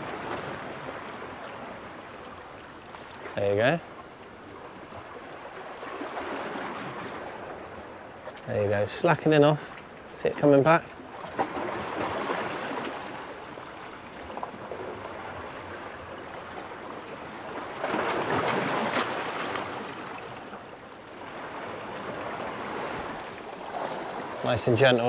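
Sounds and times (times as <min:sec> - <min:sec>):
sea water washing against rocks: 0:17.1 - 0:20.6.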